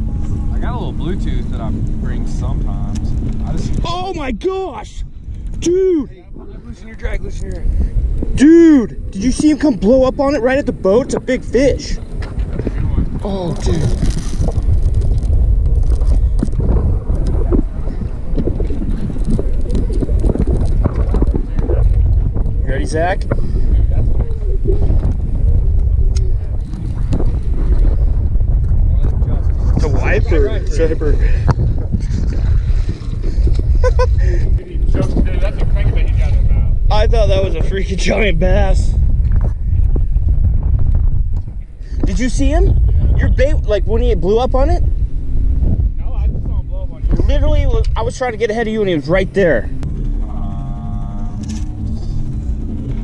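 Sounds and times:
wind rumble on microphone: 0.0 - 53.0
microphone handling ticks: 2.8 - 3.9, 12.0 - 22.6, 31.3 - 36.4, 39.0 - 43.2.

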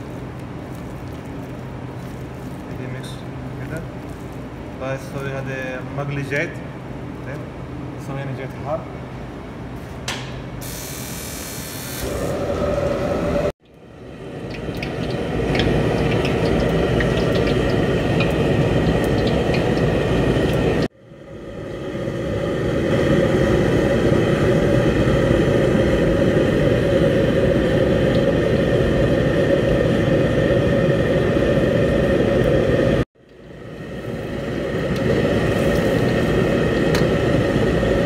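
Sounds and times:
gas burner rumble: 0.0 - 8.8, 9.6 - 38.0
oil sizzling: 13.7 - 20.9, 24.9 - 31.6, 33.9 - 38.0
frying crackles: 14.2 - 20.9, 34.1 - 38.0.

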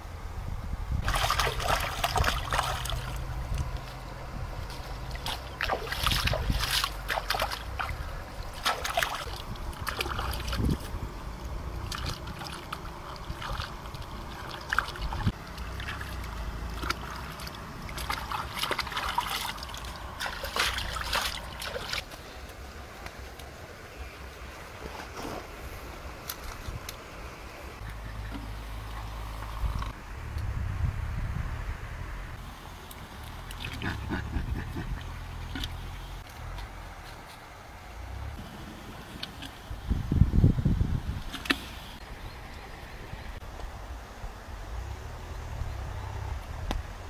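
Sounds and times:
wind rumble on microphone: 0.0 - 22.0, 25.3 - 32.5, 33.3 - 37.0, 37.9 - 47.0
river water splashing: 1.0 - 30.1, 32.4 - 40.0.

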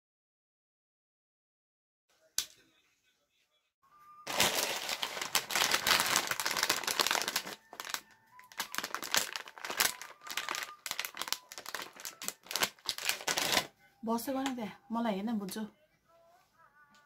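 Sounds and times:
plastic packet crinkling: 4.3 - 13.7.

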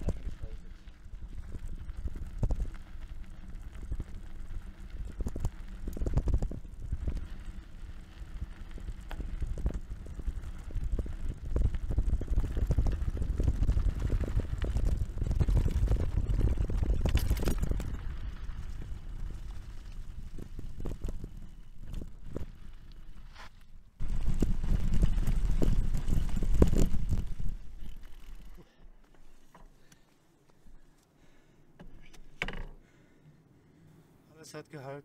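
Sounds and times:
mountain bike rolling on rough trail: 0.0 - 33.2
wind buffeting microphone: 8.5 - 22.7.

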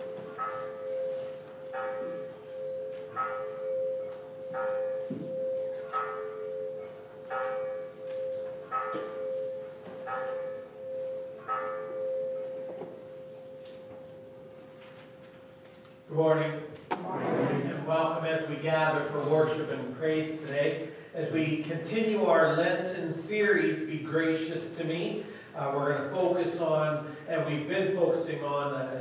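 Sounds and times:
church bell ringing: 0.0 - 16.8.

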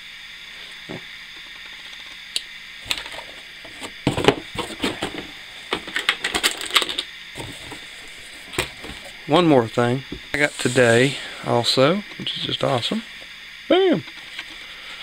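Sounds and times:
rummaging in cardboard box: 2.9 - 9.2.

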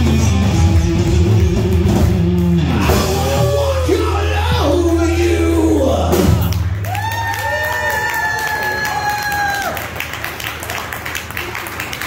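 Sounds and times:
live rock band playing: 0.0 - 6.8.

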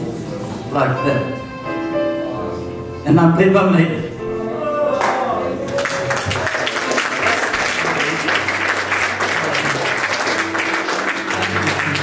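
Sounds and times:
congregation applauding: 5.0 - 12.0.

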